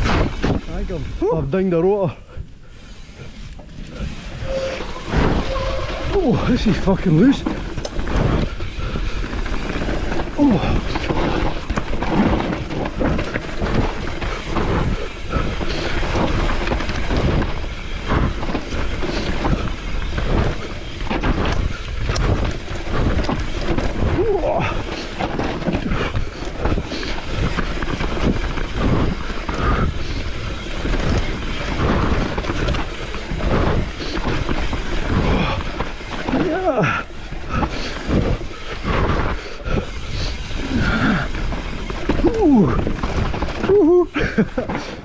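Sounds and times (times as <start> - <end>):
bike tyres rumbling over dirt: 0.0 - 45.0.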